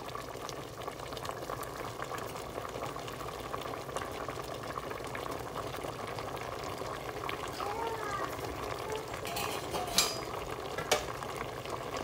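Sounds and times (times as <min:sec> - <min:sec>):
pot of broth bubbling: 0:00.0 - 0:12.0.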